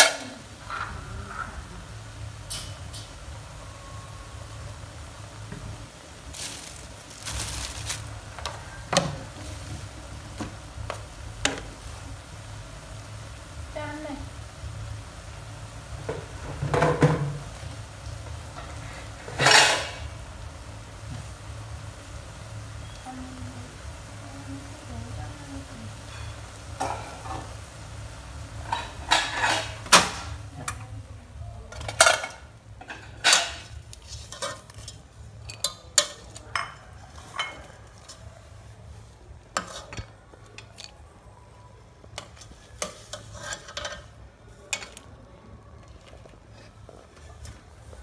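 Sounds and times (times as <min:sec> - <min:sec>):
metal spoon clinking in a pot: 0:33.2 - 0:38.1.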